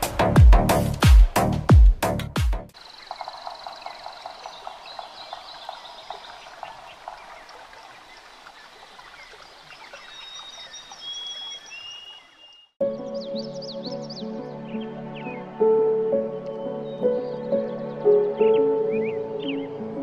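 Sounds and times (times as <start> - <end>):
small birds chirping: 2.8 - 15.8
high bird whistles: 10.0 - 12.7.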